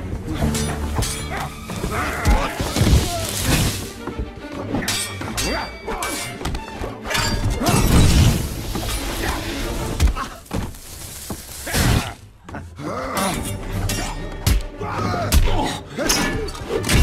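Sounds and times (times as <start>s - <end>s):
orchestral music: 0.0s - 17.0s
swords clashing: 4.8s - 6.5s
shattering crash: 7.7s - 11.0s.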